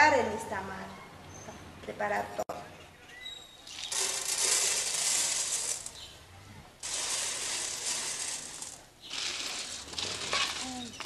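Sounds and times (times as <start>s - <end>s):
corn kernels rattling on a griddle: 3.8s - 6.1s, 6.8s - 11.0s.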